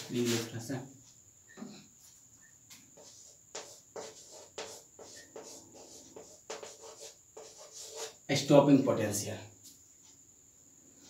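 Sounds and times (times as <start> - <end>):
chalk scratching on blackboard: 0.1 - 0.5, 2.1 - 8.3.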